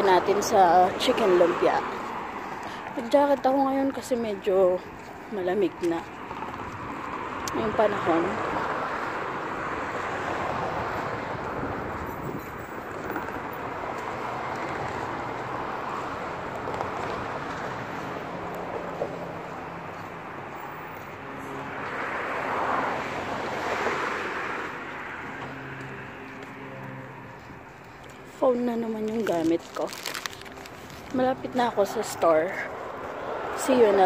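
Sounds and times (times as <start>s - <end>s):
passing cars: 0.0s - 34.0s.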